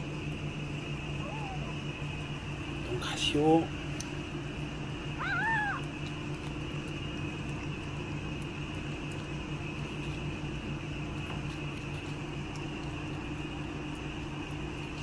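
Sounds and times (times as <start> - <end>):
steady background hum: 0.0 - 15.0
cat meowing: 1.2 - 1.8, 5.2 - 5.9.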